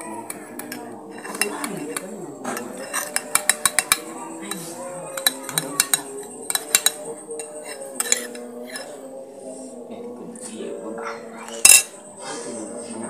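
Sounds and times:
cutlery clinking against bowl: 0.0s - 9.0s, 11.5s - 12.0s.

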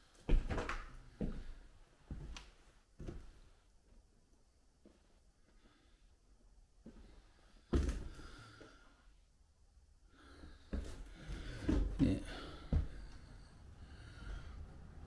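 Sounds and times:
footsteps on wooden floor: 10.7s - 13.2s.

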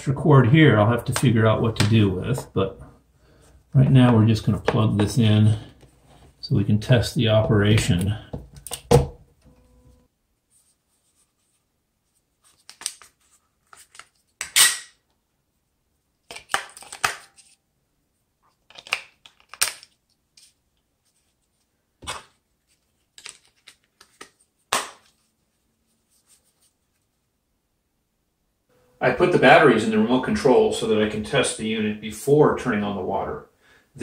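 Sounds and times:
plastic clicks and rattles: 18.5s - 20.0s.

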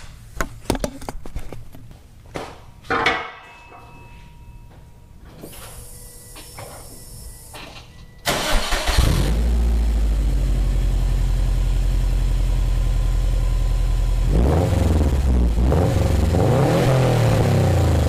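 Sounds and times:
car engine starting and idling: 8.2s - 18.0s.

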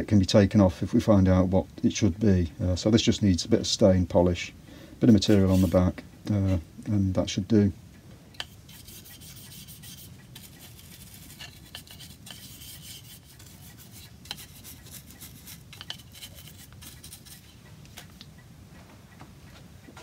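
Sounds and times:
bristle brush scrubbing wood: 5.0s - 5.9s, 8.5s - 17.6s.

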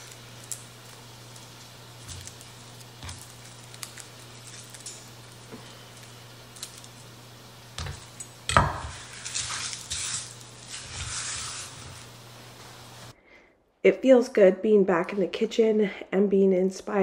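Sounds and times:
garlic skins crackling: 0.0s - 12.3s
low steady hum: 0.0s - 17.0s.

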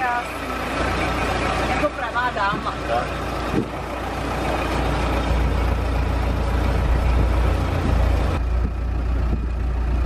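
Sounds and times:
low car engine: 0.0s - 10.0s
road noise: 0.0s - 10.0s.

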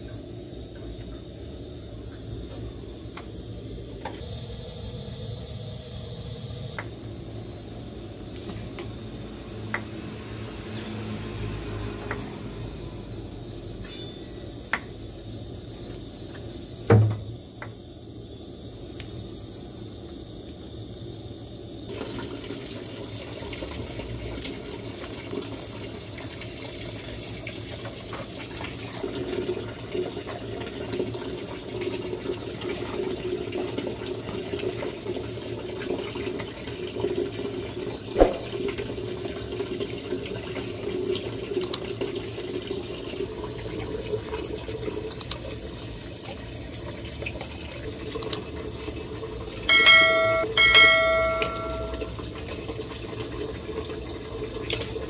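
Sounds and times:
soup boiling and bubbling: 0.0s - 55.0s
sharp knock: 38.2s - 38.6s
short ringing tones: 49.7s - 52.2s.

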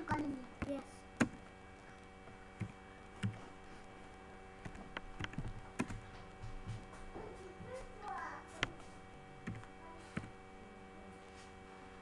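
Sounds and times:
steady electrical hum: 0.0s - 12.0s
computer mouse clicking: 2.6s - 3.4s, 4.6s - 6.0s, 9.4s - 10.4s.

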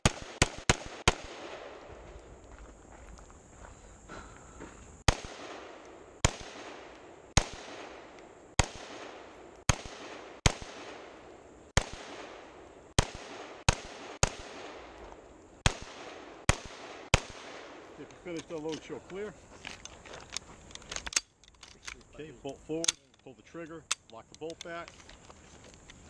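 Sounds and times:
rifle gunshots with echo: 0.0s - 1.9s, 5.1s - 15.0s, 15.6s - 18.4s.

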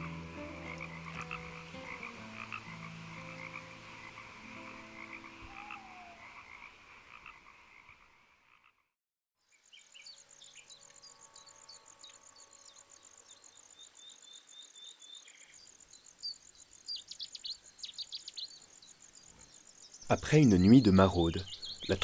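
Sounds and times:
frogs croaking: 0.0s - 22.0s
small birds chirping: 9.4s - 22.0s
high insect trill: 9.5s - 20.6s.

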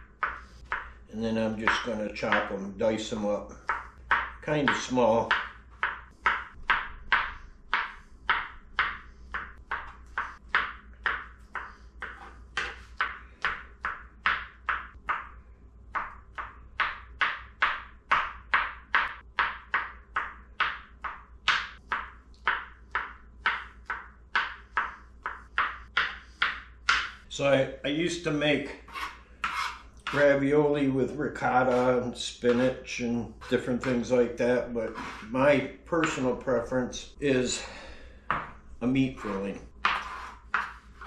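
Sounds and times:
knife chopping on cutting board: 3.6s - 15.3s, 15.9s - 27.2s, 28.9s - 30.4s, 34.9s - 35.3s, 39.2s - 41.0s.

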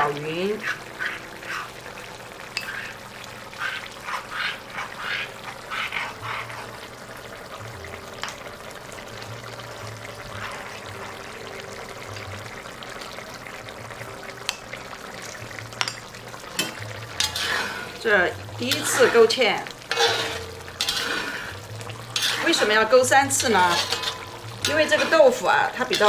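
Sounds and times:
spoon stirring in ceramic bowl: 2.5s - 3.0s, 23.4s - 26.0s.

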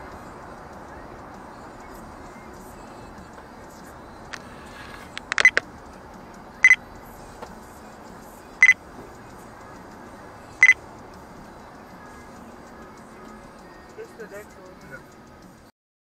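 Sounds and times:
low road noise: 0.0s - 15.7s
cluster of clicks: 4.3s - 5.7s
short high electronic beeps: 5.2s - 5.6s, 6.6s - 6.8s.

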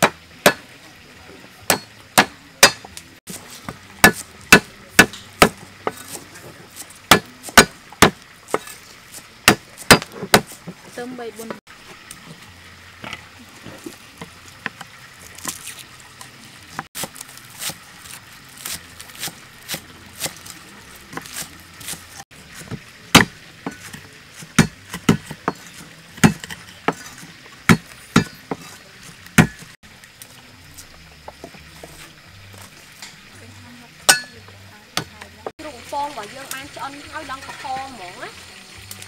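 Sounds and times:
cleaver chopping on wooden block: 0.0s - 0.7s, 1.7s - 3.0s, 3.6s - 6.2s, 7.1s - 8.8s, 9.4s - 10.6s, 21.1s - 29.7s.

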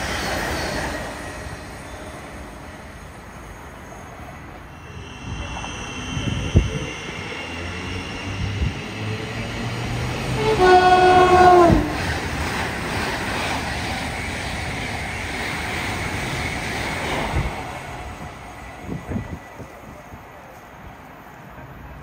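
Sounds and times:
train rushing past: 0.0s - 22.0s
train two-tone horn: 10.2s - 12.0s.

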